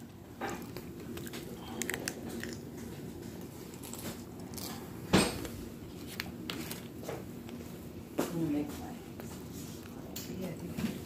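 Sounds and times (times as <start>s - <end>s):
soft chewing and mouth sounds: 0.0s - 5.0s.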